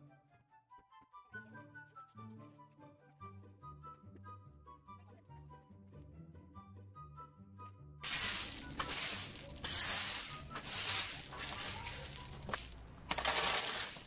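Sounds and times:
soft background music: 0.0 - 13.8
garden tool scraping gravel: 8.0 - 14.0
shuffling feet: 8.0 - 14.0.

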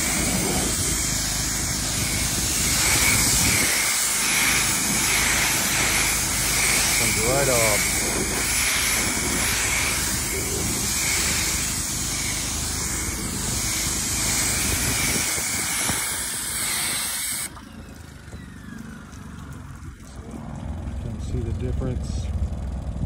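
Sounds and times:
pressure washer spray hissing: 0.0 - 17.5.

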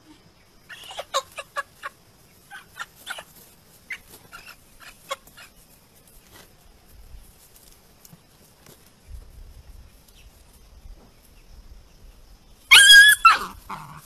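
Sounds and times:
chicken squawking: 0.7 - 5.6, 12.7 - 14.0.

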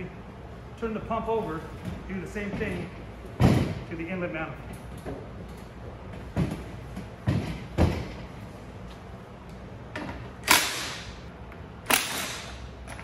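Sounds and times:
dull thuds of pump set down: 2.6 - 3.8, 6.3 - 8.2.

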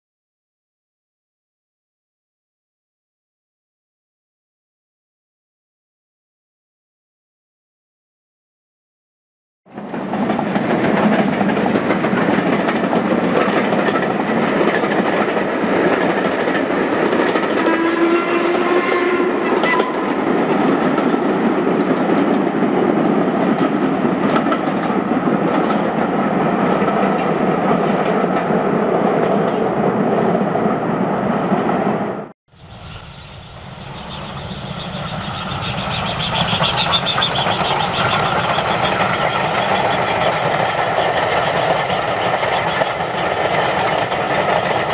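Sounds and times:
steam engine approaching: 9.7 - 44.9
steam train running past: 9.7 - 44.9
rising pitched tone: 32.5 - 38.0.

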